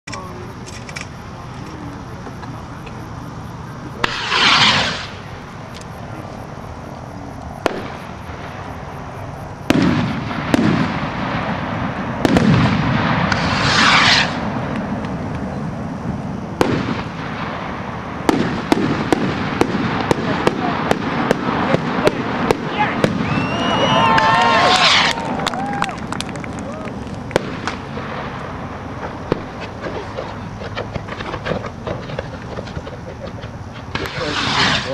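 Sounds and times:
rockets whooshing: 0.6 - 34.9
fireworks bangs and rumbles: 1.4 - 6.6, 7.6 - 34.9
crackling pops: 7.4 - 8.1, 12.2 - 15.5, 16.6 - 17.5, 18.2 - 34.9.

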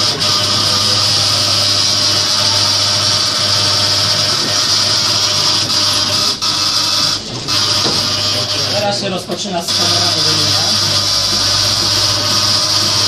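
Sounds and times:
milking machine humming: 0.0 - 13.0.

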